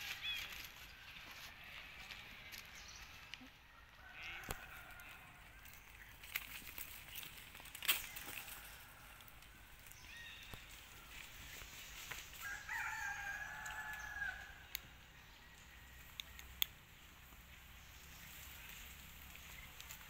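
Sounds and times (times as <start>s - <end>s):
faint rooster crowing: 3.4s - 5.7s, 8.0s - 10.2s, 12.1s - 16.2s
light sharp clicks: 16.1s - 16.8s.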